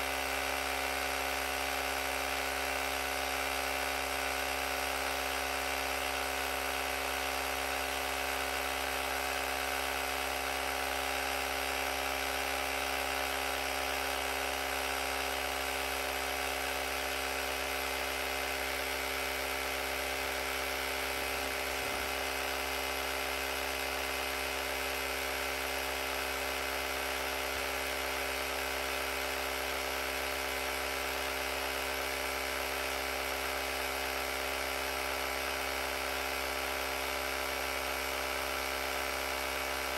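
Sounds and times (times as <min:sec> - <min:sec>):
tire inflator compressor humming: 0:00.0 - 0:39.9.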